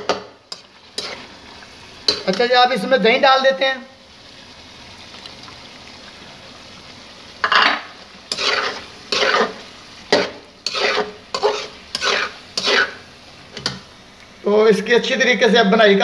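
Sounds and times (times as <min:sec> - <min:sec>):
low sizzle: 0:00.0 - 0:16.0
metal spatula scraping pan: 0:00.1 - 0:01.3, 0:07.4 - 0:13.8.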